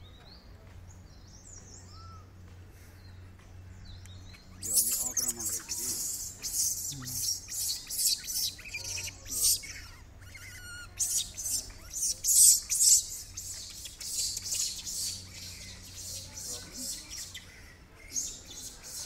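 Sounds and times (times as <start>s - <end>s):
small birds chirping: 0.0s - 19.0s
bird trill: 3.9s - 19.0s.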